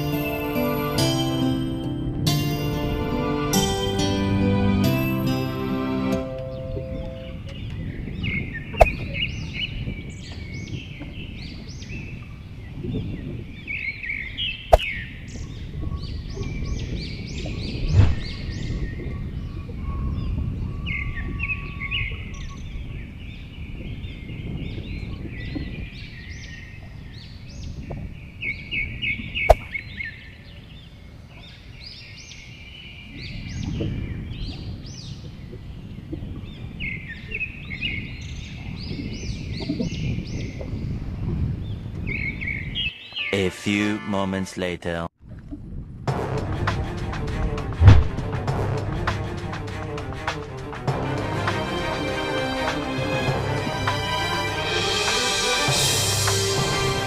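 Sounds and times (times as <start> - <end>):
wind rumble on microphone: 6.4 - 42.9, 45.2 - 50.6
small birds chirping: 6.5 - 43.6.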